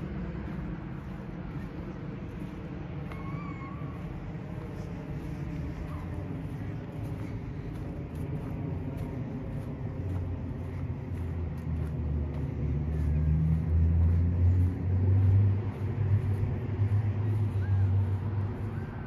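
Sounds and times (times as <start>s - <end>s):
vehicle engine hum passing: 0.0s - 19.0s.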